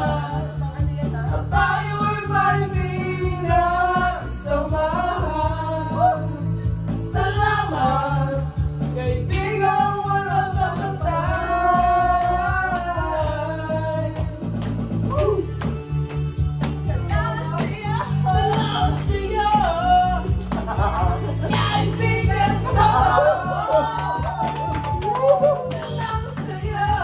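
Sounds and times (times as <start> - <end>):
man singing into a microphone: 0.0 - 6.5
group singing along: 0.0 - 14.6, 16.8 - 27.0
music backing track: 0.0 - 27.0.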